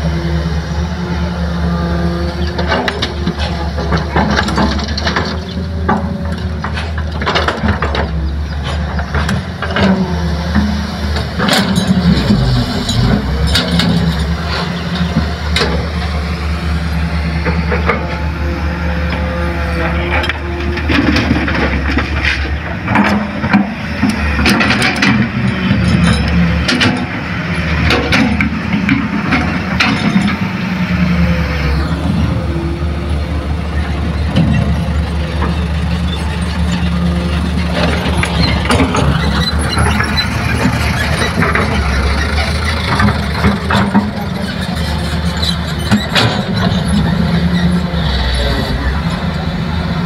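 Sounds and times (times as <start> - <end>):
heavy diesel engine running: 0.0 - 50.0
sharp knocks and clanks: 2.6 - 16.0, 27.8 - 30.4
clatter: 37.6 - 47.8.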